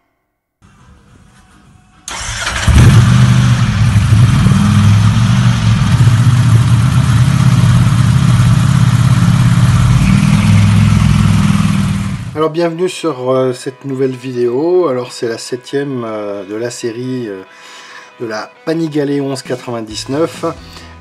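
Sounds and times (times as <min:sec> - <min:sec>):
motorcycle engine running: 0:02.5 - 0:12.4.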